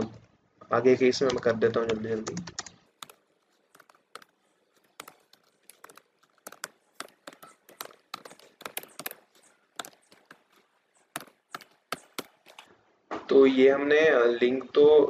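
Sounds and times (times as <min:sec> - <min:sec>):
keyboard typing: 0:01.1 - 0:12.7.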